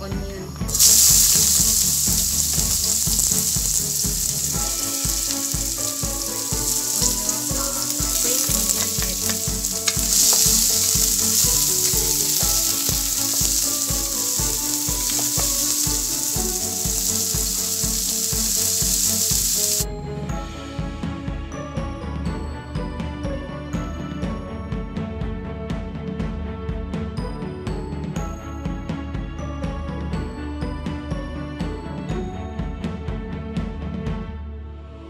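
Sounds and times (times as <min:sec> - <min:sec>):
background music with steady beat: 0:00.0 - 0:35.0
onions sizzling in a wok: 0:00.7 - 0:19.8
wooden spatula stirring: 0:00.7 - 0:19.8.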